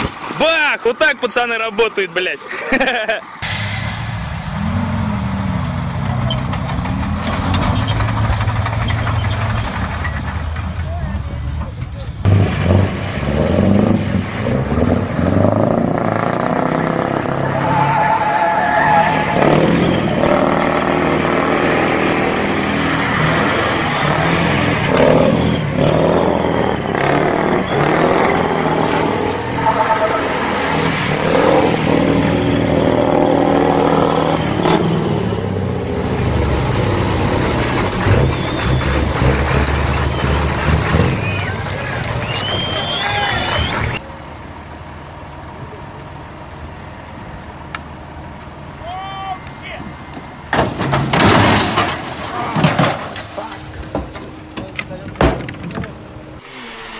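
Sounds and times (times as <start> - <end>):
truck engine revving: 2.8 - 44.0, 56.0 - 56.9.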